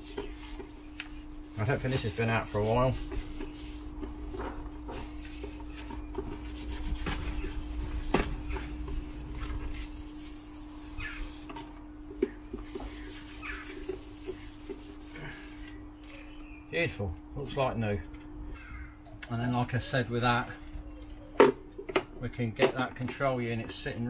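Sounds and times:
wipe scrubbing hard plastic: 0:00.0 - 0:15.8.

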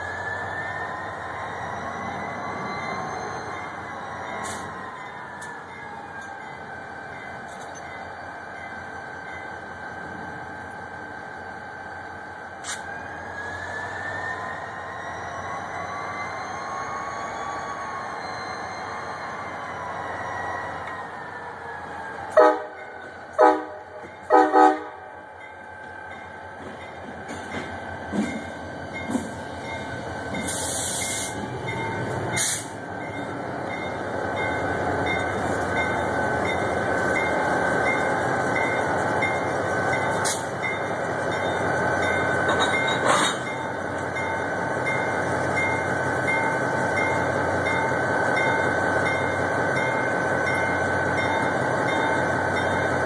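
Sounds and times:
locomotive engine rolling past: 0:00.0 - 0:53.0
locomotive horn toots: 0:22.4 - 0:22.8, 0:23.4 - 0:25.0.

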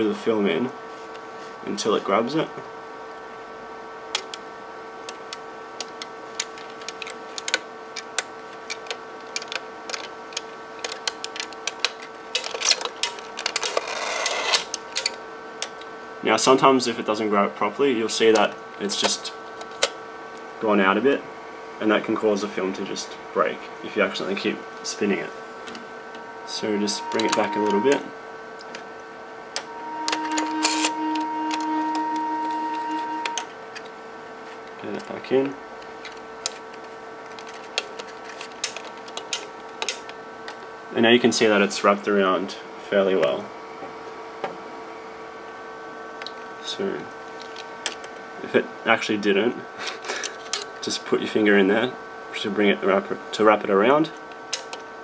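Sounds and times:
scanner humming: 0:00.0 - 0:55.0
scanner knob clicking: 0:26.6 - 0:28.8, 0:29.6 - 0:33.9.

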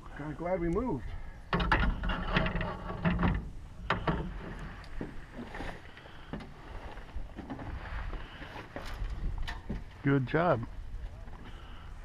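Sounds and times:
knocks and clatter on boat: 0:01.5 - 0:05.7.

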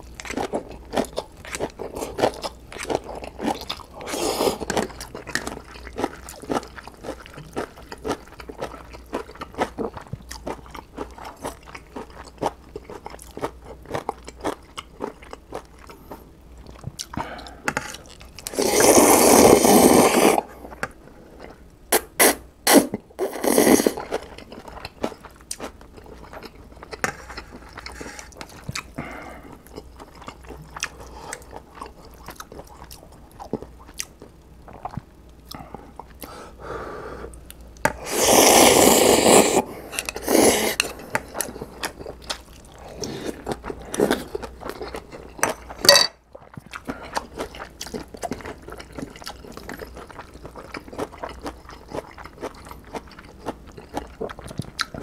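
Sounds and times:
slurping noodles: 0:04.0 - 0:04.8, 0:18.5 - 0:20.5, 0:22.2 - 0:24.0, 0:37.9 - 0:40.9
wet chewing: 0:39.2 - 0:55.0.

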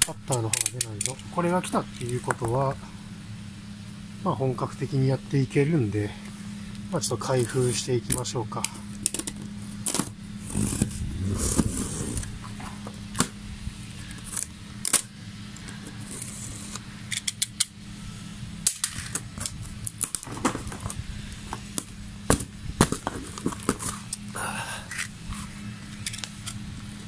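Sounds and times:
steady low hum: 0:00.0 - 0:27.0
cardboard box being opened: 0:09.9 - 0:12.8.

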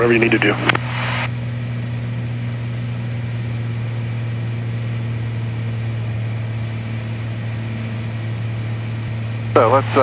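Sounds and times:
airplane engine and propeller: 0:00.0 - 0:10.0.

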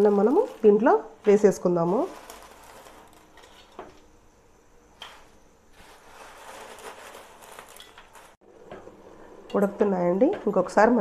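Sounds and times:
dry noodles rustling: 0:00.0 - 0:03.7, 0:05.7 - 0:08.4.

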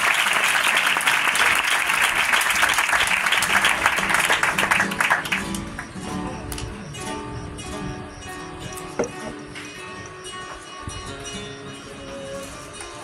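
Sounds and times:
audience applause: 0:00.0 - 0:06.0
flamenco guitar plucking: 0:03.0 - 0:13.0.

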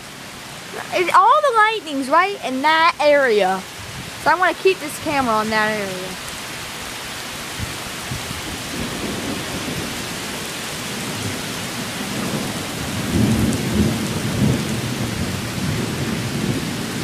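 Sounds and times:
heavy rain falling: 0:00.0 - 0:17.0
thunder rumbling: 0:07.6 - 0:17.0.

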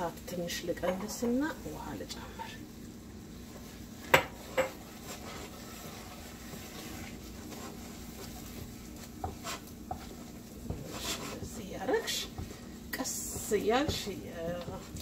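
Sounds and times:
steady low hum: 0:00.0 - 0:15.0
spoon scraping saucepan: 0:04.1 - 0:15.0.

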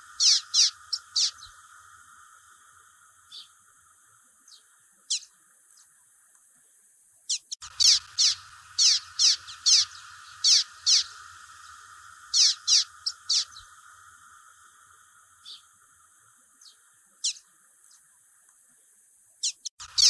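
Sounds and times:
bird singing high sweeping notes: 0:00.0 - 0:02.5, 0:03.1 - 0:03.7, 0:07.3 - 0:15.8
faint background hiss: 0:00.0 - 0:20.0.

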